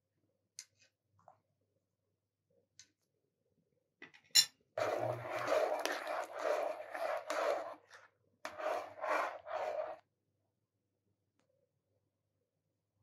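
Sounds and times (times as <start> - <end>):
metal spoon scraping a pot: 4.8 - 10.0.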